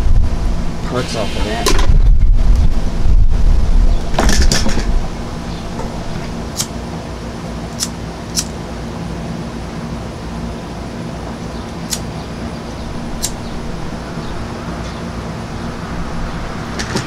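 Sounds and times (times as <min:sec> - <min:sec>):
wind rumble on microphone: 0:00.0 - 0:06.4, 0:15.4 - 0:17.0
low background hum: 0:00.0 - 0:17.0.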